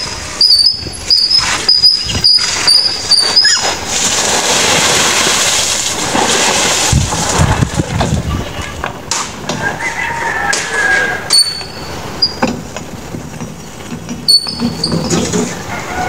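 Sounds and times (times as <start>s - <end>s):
rough rushing noise: 0.0s - 9.5s
squeaky wheelbarrow wheel: 0.0s - 16.0s.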